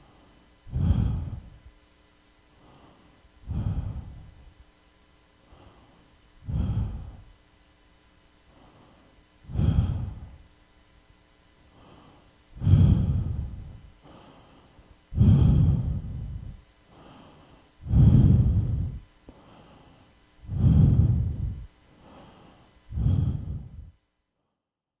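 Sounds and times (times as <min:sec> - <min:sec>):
heavy breathing: 0:00.0 - 0:01.7, 0:02.6 - 0:04.6, 0:05.4 - 0:07.4, 0:08.4 - 0:10.5, 0:11.6 - 0:24.0.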